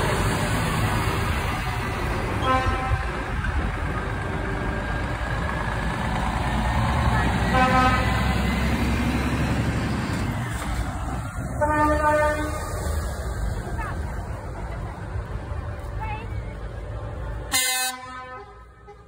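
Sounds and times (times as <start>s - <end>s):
heavy truck engines running: 0.0s - 19.0s
truck horn blasts: 2.4s - 3.2s, 7.5s - 8.3s, 11.6s - 12.7s, 17.5s - 19.0s.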